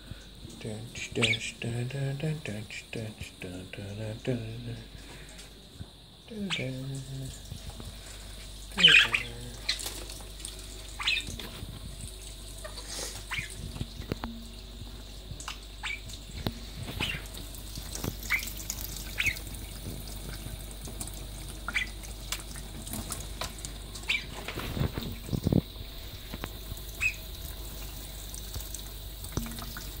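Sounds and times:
budgerigars chirping: 8.8 - 9.8, 11.0 - 11.4, 13.3 - 13.5, 15.8 - 16.0, 17.0 - 17.3, 19.2 - 19.4, 24.1 - 24.3, 27.0 - 27.2
tap running: 22.1 - 30.0.

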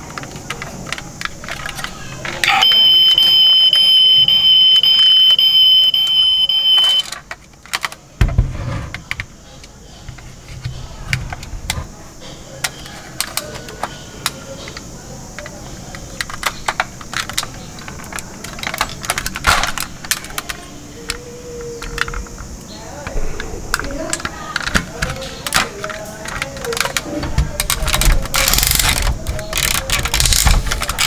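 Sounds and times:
plastic toy trucks clicking and rattling: 0.0 - 3.0, 4.4 - 8.2, 8.9 - 31.0
high electronic tone: 2.6 - 7.1.

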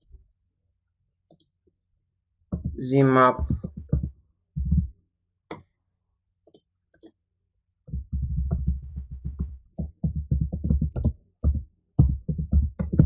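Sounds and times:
rapid keyboard typing: 3.4 - 4.9, 7.9 - 13.0
computer mouse clicks: 6.5 - 7.2.

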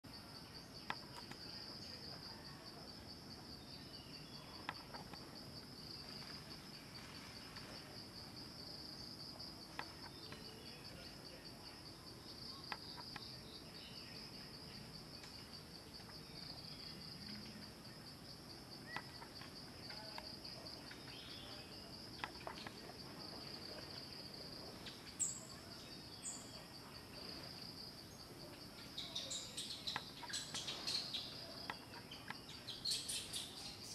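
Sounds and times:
insect chorus trilling: 0.1 - 33.9
faint clicks: 0.8 - 1.5
bird chirps: 28.8 - 33.9.

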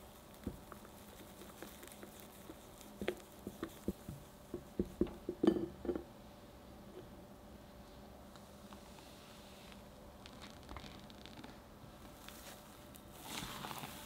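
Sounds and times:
wet batter squishing: 0.0 - 4.8.

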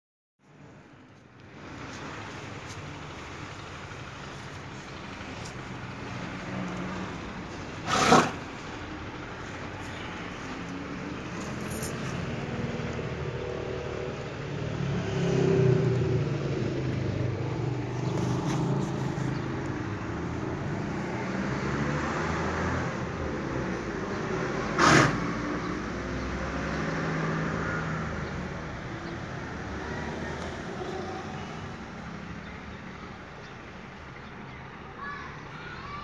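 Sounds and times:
motor vehicle rumbling: 0.4 - 36.0.

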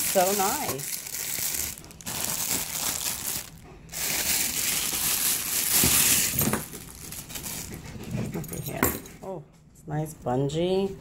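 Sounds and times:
plastic bag crinkling: 0.0 - 7.9.

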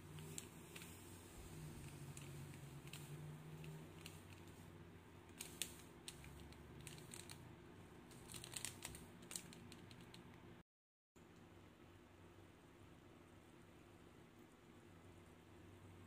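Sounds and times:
foil sachet crinkling and clicking: 1.8 - 4.6, 5.3 - 7.4, 8.1 - 10.3.

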